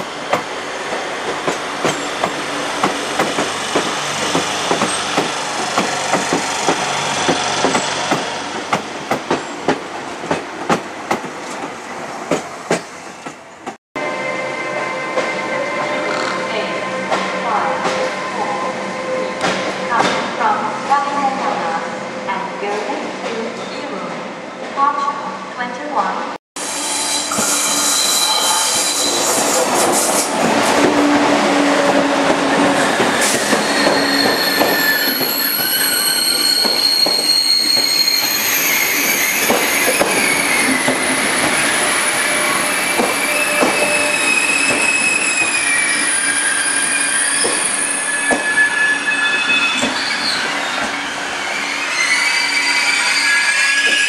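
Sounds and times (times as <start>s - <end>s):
train wheels and brakes squealing: 1.4s - 8.5s, 14.0s - 20.2s, 26.6s - 54.0s.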